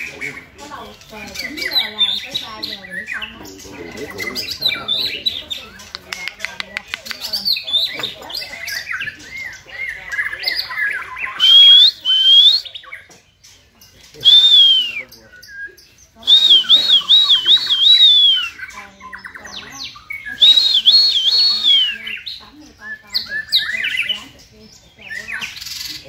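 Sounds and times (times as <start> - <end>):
birds singing whistled phrases: 0.0 - 26.0
scratchy bird chattering: 0.0 - 26.0.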